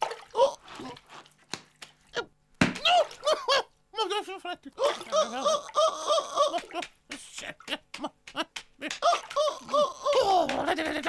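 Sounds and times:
falling vocal cry: 4.8 - 6.8, 8.4 - 11.0
high-pitched cartoon giggling: 7.6 - 11.0.

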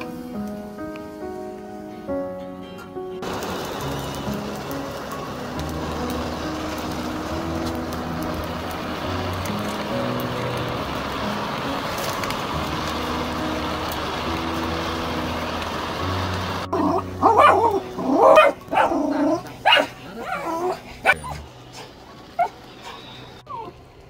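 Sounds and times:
faint background music: 0.0 - 24.0
steady hiss: 0.0 - 24.0
dog barking and whining: 16.7 - 23.8.

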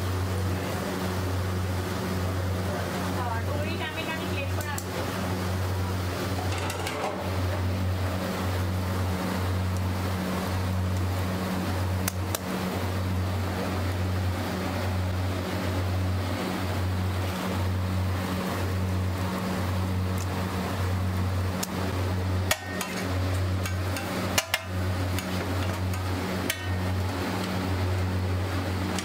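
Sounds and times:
kitchen rushing roar: 0.0 - 29.0
low hum: 0.0 - 29.0
metal spatula clacking on griddle: 22.4 - 26.8.

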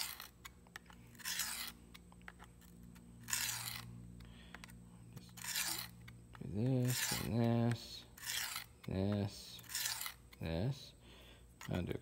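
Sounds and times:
knife rasping on sharpener plate: 1.1 - 1.8, 3.2 - 3.9, 5.3 - 6.0, 6.7 - 8.9, 9.5 - 10.4.

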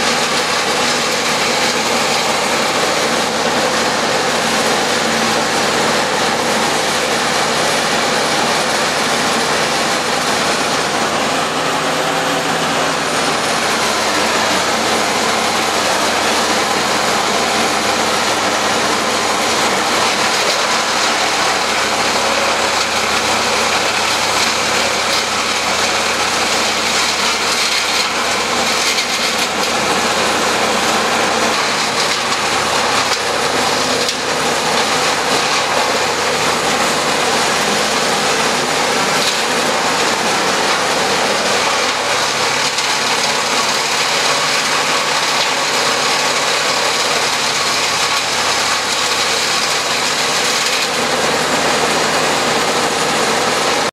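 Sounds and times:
wood chipper running: 0.0 - 53.9.

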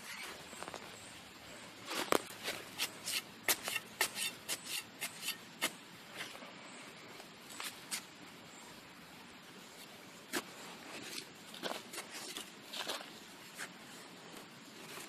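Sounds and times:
trowel scraping dry soil: 1.9 - 6.3.

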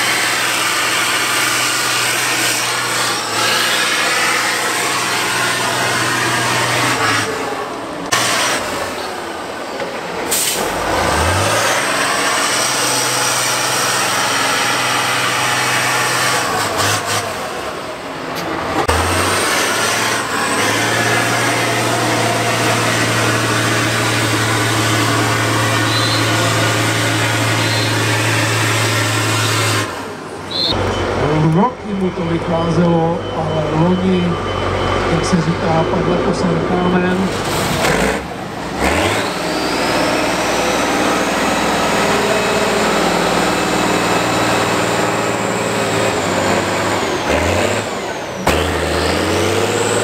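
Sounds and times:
heavy diesel engine revving: 0.0 - 50.0.

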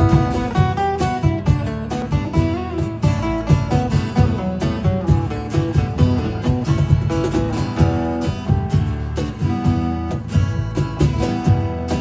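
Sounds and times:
acoustic guitars strummed and picked: 0.0 - 12.0
cajon tapping a steady beat: 0.0 - 12.0.

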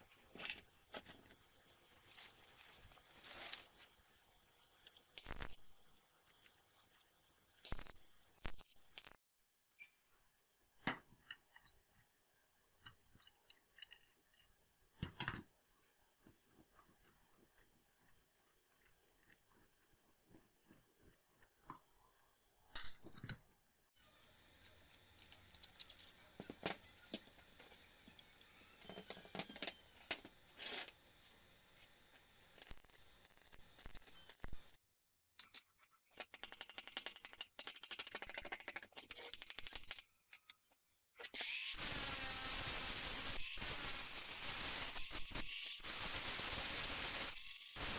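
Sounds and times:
arc welding crackling: 0.9 - 9.2, 24.4 - 34.8, 41.4 - 47.9
angle grinder cutting steel: 41.4 - 47.9.

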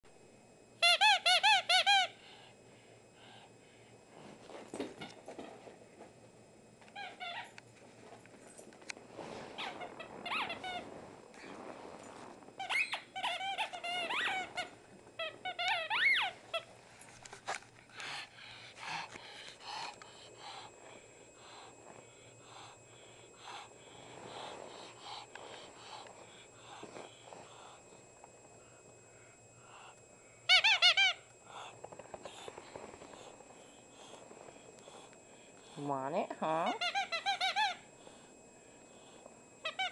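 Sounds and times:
squeaky toy squeaking: 12.6 - 14.5.

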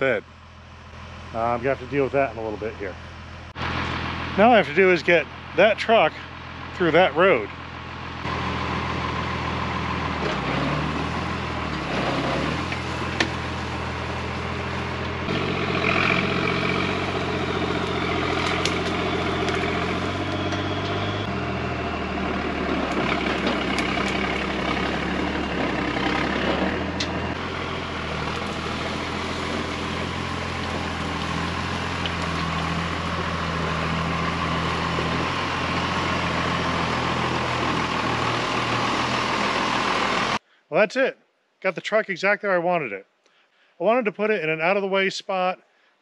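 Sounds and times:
heavy truck engine: 0.0 - 40.5
sharp cracks: 17.9 - 19.7.

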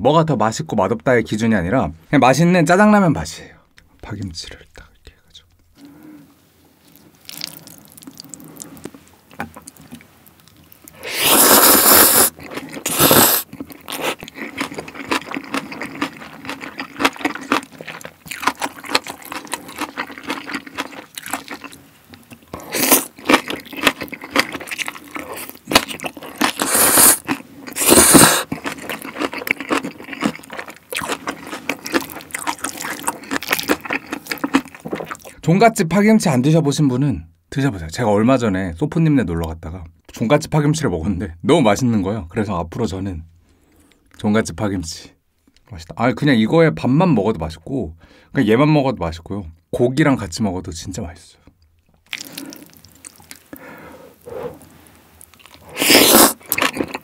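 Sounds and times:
wet chewing and smacking: 6.8 - 35.4, 51.6 - 57.0
slurping noodles: 10.9 - 18.0, 22.6 - 33.1, 53.8 - 54.8, 55.5 - 57.0.

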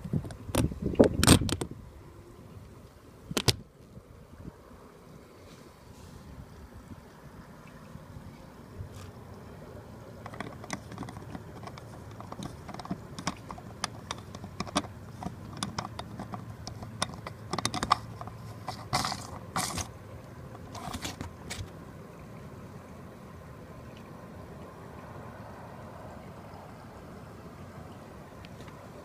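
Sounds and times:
plastic clicks and clatter: 10.2 - 19.9
plastic scraping: 10.2 - 20.0, 20.6 - 21.7.

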